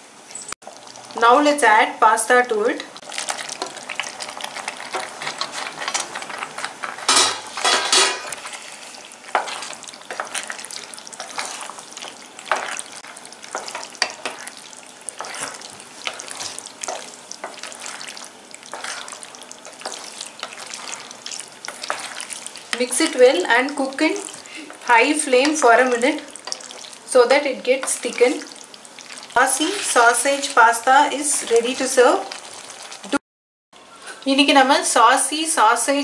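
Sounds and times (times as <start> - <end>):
tomato sauce sizzling: 0.6 - 33.2
wooden spatula scraping pan: 3.3 - 26.9, 29.2 - 33.1.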